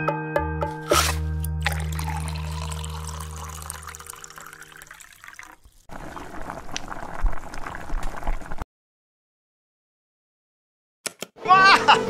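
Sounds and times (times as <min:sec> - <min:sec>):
water trickling into a can: 0:00.9 - 0:08.6.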